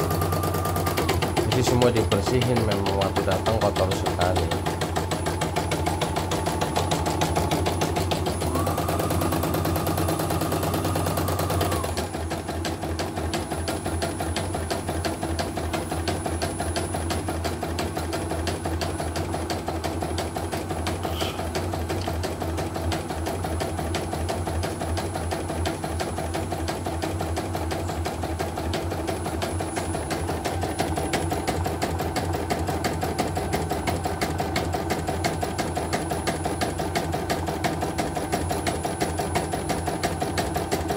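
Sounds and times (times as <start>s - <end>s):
embroidery machine needle stitching: 0.0s - 13.5s
motor hum: 0.0s - 40.9s.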